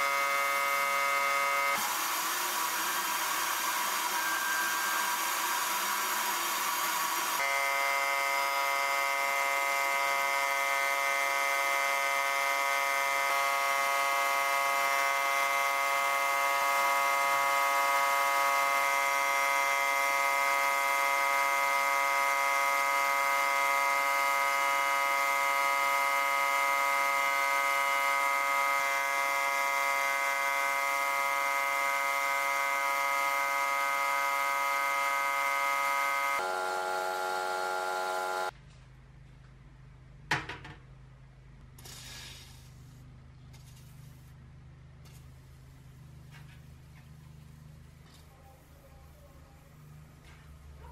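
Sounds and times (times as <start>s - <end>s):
buzzing hum: 7.4s - 38.6s
sandblast hissing: 41.8s - 44.4s.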